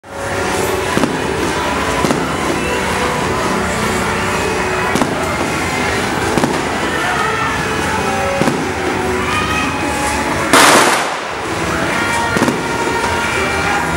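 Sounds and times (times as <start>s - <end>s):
firecrackers going off: 0.1s - 13.9s
loud single bangs: 10.5s - 11.4s.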